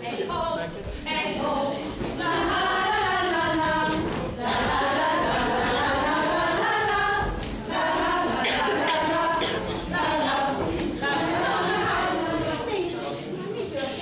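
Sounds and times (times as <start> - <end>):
women singing unaccompanied: 0.0 - 13.1.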